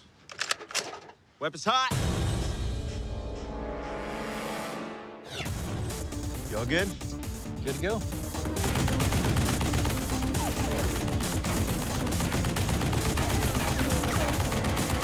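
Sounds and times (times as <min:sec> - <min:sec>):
machine gun burst: 0:08.6 - 0:15.0.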